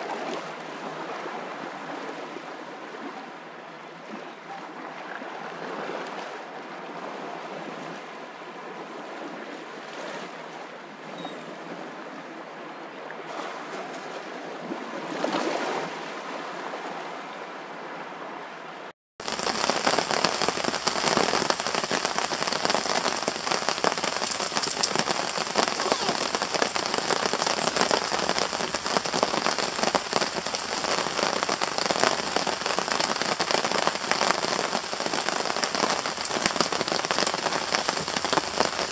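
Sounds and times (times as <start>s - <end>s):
rain on a tarp: 0.0s - 1.4s, 19.2s - 38.9s.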